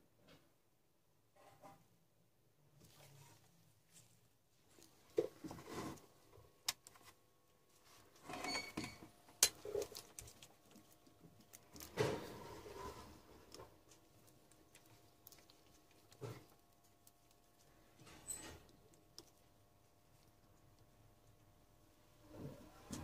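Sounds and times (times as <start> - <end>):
cable rustling: 6.7 - 19.5.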